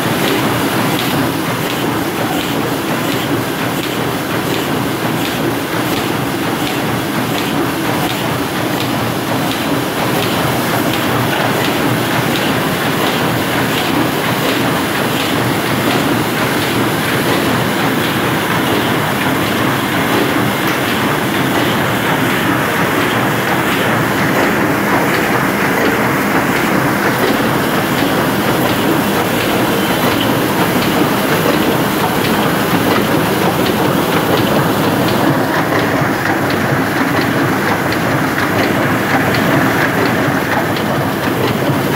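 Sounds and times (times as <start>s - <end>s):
printing press clattering: 0.0s - 41.9s.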